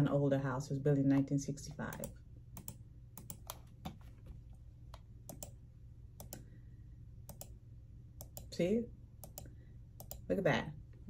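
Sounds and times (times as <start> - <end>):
computer clicks: 1.9 - 4.0, 4.9 - 5.6, 6.2 - 6.5, 7.3 - 7.6, 8.2 - 8.5, 9.2 - 10.3.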